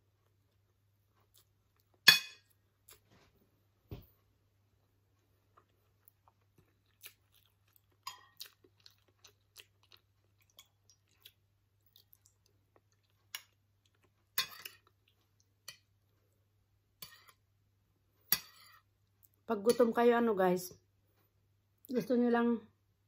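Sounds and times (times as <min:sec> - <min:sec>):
person chewing food: 0:00.0 - 0:03.1, 0:04.7 - 0:17.5.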